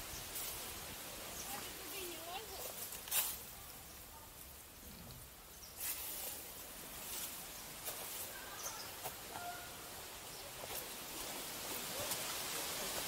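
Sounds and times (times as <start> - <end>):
steady hiss: 0.0 - 13.0
bird calls: 7.4 - 11.0.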